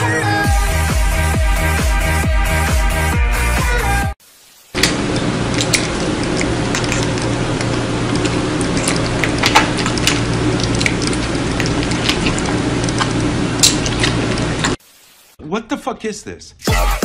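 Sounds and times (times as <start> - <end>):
steady hiss: 4.2 - 4.8, 14.8 - 15.4.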